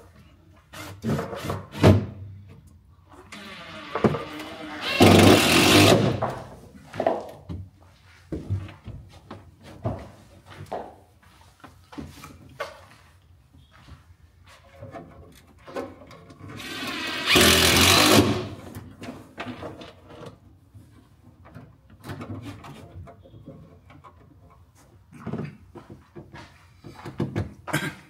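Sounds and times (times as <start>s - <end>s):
power drill driving screw into wood: 3.3s - 6.3s, 16.6s - 18.6s.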